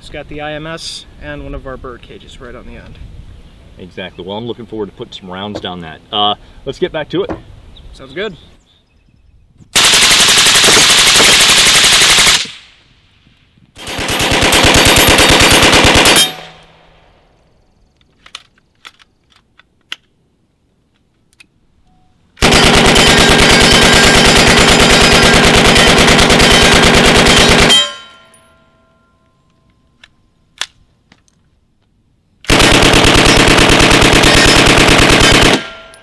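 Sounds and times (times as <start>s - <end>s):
automatic gunfire bursts: 9.8s - 12.5s, 13.8s - 16.6s, 22.4s - 27.9s, 32.5s - 35.9s.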